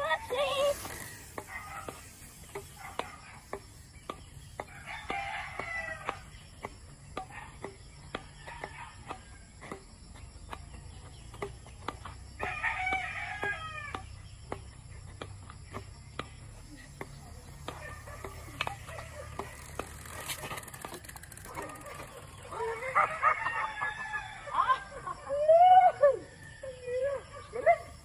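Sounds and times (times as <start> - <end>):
rooster crowing: 12.4 - 14.0, 22.9 - 24.6.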